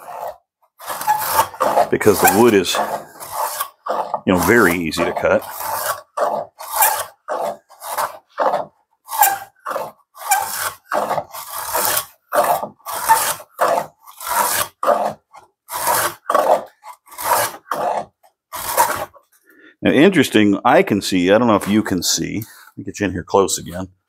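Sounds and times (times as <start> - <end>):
hand plane cutting wood: 0.0 - 19.2, 21.4 - 22.8
plane squeaking: 1.0 - 3.5.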